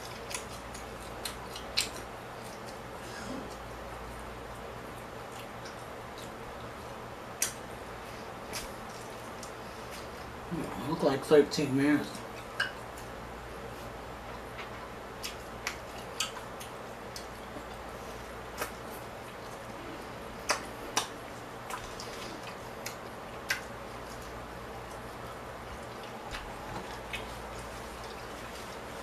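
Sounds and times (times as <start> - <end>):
mouth chewing and smacking: 0.0 - 10.4, 13.8 - 29.0
steady low hum: 0.0 - 29.0.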